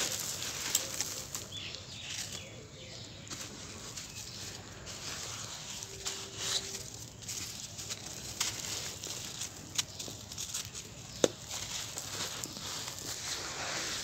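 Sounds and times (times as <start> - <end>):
grains pattering down: 0.0 - 2.1
sharp crackles: 0.0 - 2.4, 3.4 - 14.0
gritty crunching of sand clumps: 0.0 - 14.0.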